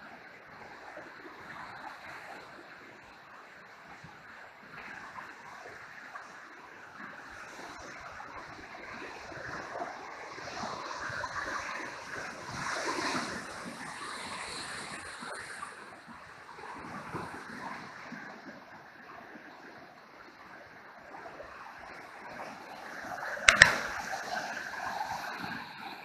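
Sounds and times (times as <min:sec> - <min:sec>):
white-water rapids rushing: 0:21.1 - 0:26.0.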